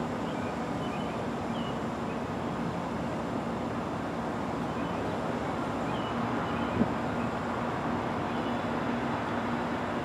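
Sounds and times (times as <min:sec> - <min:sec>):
distant road traffic rumble: 0:00.0 - 0:10.0
faint bird chirps: 0:00.2 - 0:02.2.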